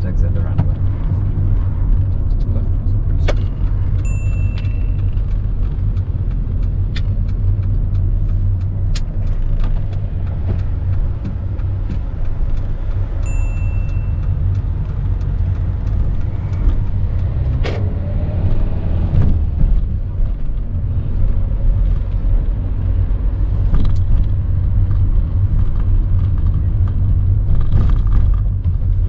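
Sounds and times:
car engine and road rumble: 0.0 - 29.0
sharp clicks: 3.2 - 17.9
short high beeps: 4.1 - 5.2, 13.3 - 14.2.

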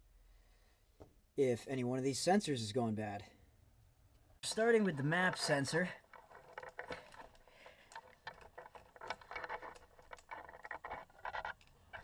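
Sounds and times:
hands working plastic connector: 4.4 - 12.0.

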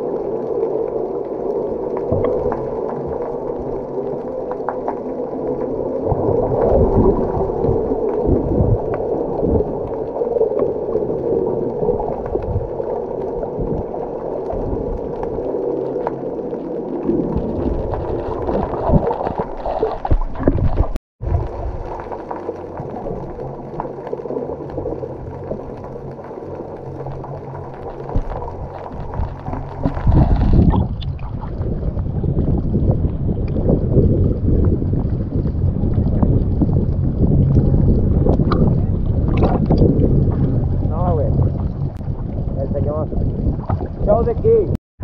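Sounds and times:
water splashing along hull: 0.0 - 44.8.

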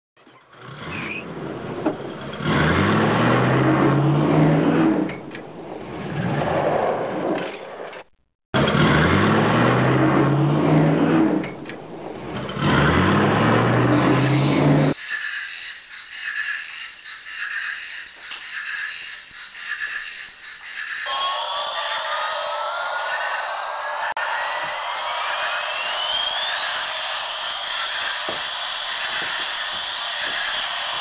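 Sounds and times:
car engine revving: 0.6 - 5.2, 8.6 - 11.5, 12.1 - 15.0, 21.6 - 31.0.

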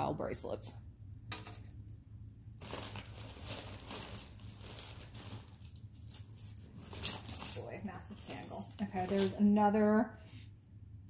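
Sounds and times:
bag crinkling and rustling: 2.6 - 9.8.

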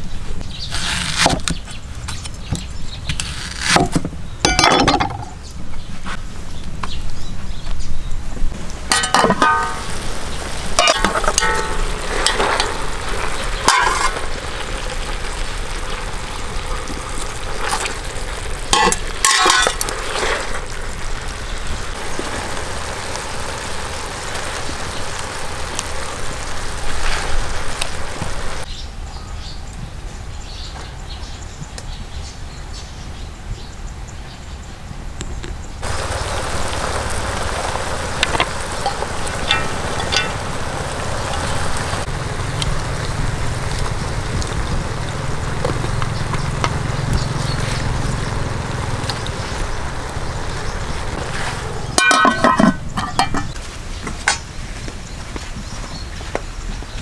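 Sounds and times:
stove hissing: 8.6 - 28.7, 35.8 - 53.6
metal pot lid clattering: 8.9 - 9.9, 10.8 - 12.8, 13.6 - 14.2, 18.7 - 19.9, 52.0 - 53.5.

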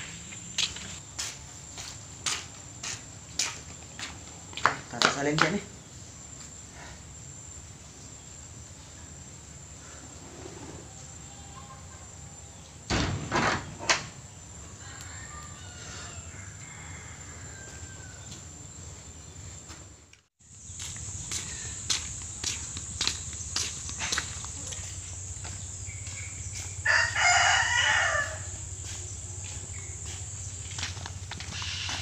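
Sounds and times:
footsteps on dirt path: 0.0 - 5.6, 16.6 - 19.9, 20.6 - 32.0
high-pitched insect drone: 20.5 - 32.0.

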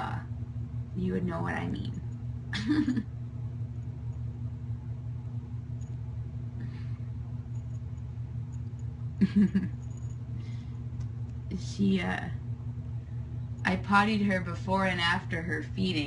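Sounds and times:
woman's voice: 0.0 - 0.3, 1.0 - 3.0, 11.5 - 12.4, 13.6 - 16.0
steady low hum: 0.0 - 16.0.

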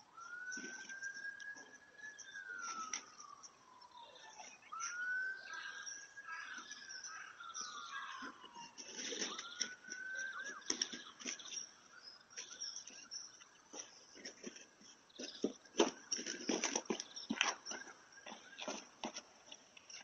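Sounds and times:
siren wailing: 0.0 - 14.6
small birds chirping: 0.0 - 20.0.

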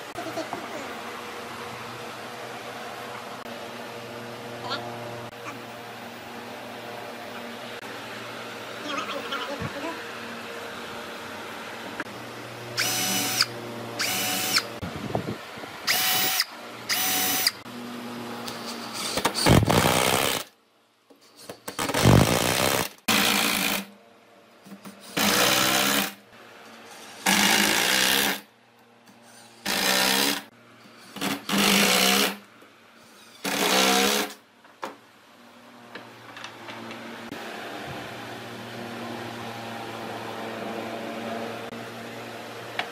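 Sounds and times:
cordless drill driving screws: 12.8 - 14.7, 15.9 - 17.6.

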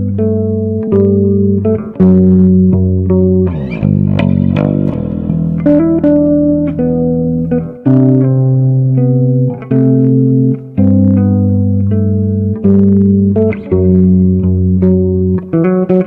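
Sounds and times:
plucked guitar chords: 0.0 - 16.0
low bass note: 2.4 - 8.2.

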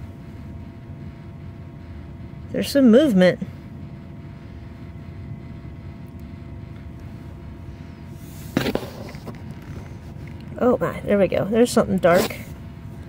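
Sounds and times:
low background hum: 0.0 - 13.0
handling noise: 8.2 - 10.4.

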